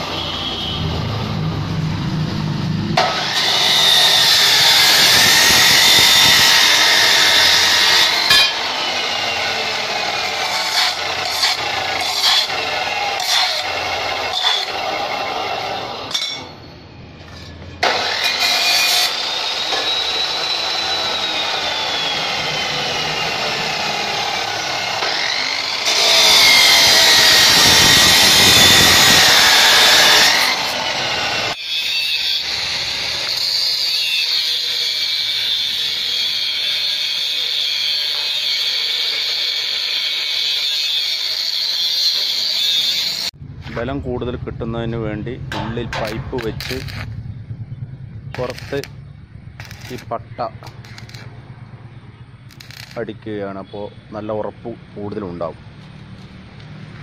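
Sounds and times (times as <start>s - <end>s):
chop saw cutting steel pipe: 3.0s - 16.5s, 17.8s - 43.4s, 45.5s - 47.1s, 48.4s - 48.9s, 49.6s - 51.3s, 52.5s - 53.2s.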